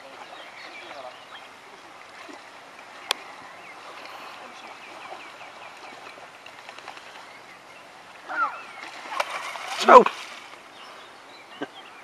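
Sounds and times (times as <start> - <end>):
fish splashing in water: 8.8 - 10.6.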